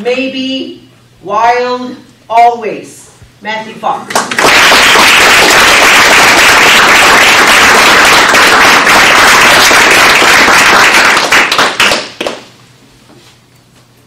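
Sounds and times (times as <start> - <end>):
small audience applauding: 4.1 - 12.5.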